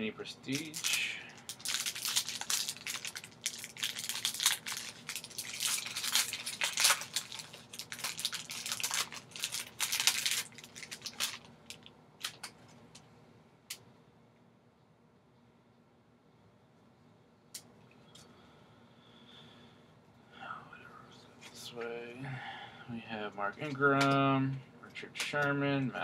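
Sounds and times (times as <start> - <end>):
foil wrapper crinkling and tearing: 0.5 - 12.6.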